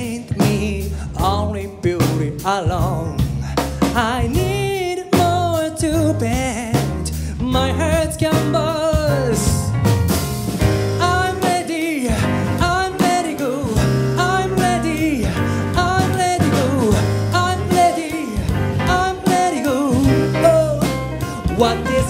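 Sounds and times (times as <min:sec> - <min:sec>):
man singing: 0:00.0 - 0:09.8, 0:10.8 - 0:22.0
drums: 0:00.0 - 0:22.0
electric bass: 0:00.0 - 0:22.0
keyboard: 0:06.3 - 0:22.0.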